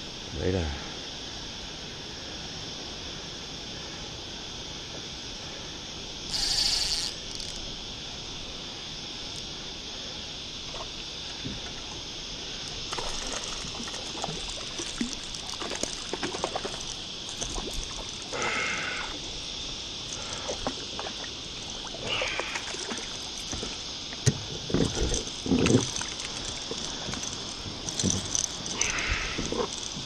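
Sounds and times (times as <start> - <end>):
water lapping against kayak hull: 12.8 - 19.4, 20.0 - 30.0
small splashes: 12.9 - 19.2, 20.1 - 24.2.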